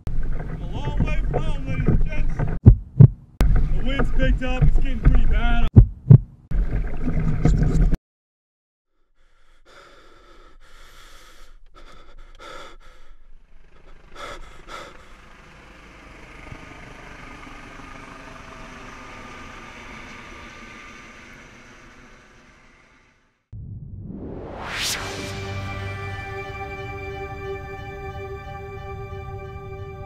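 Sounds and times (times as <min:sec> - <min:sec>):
heavy gasping breaths: 0:09.1 - 0:15.3
distant helicopter drone: 0:11.8 - 0:23.4, 0:24.6 - 0:30.0
loud sound: 0:23.6 - 0:30.0.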